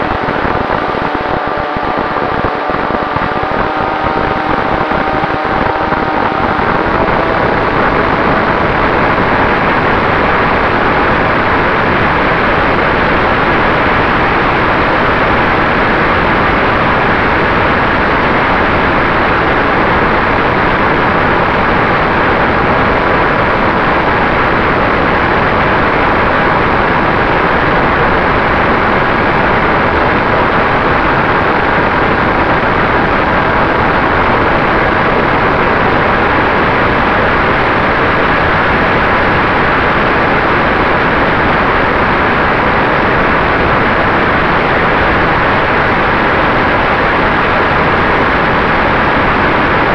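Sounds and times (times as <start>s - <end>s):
motor noise: 0.0s - 15.4s
airflow rush: 0.0s - 49.9s
faint steady whine: 0.0s - 49.9s.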